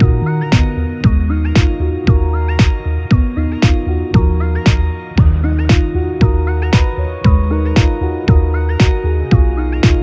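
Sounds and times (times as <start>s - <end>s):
music with steady drum beat: 0.0s - 10.0s.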